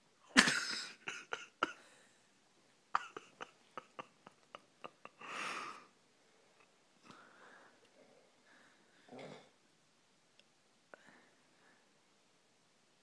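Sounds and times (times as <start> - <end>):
person stifling laughter: 0.3 - 1.8, 3.0 - 5.8.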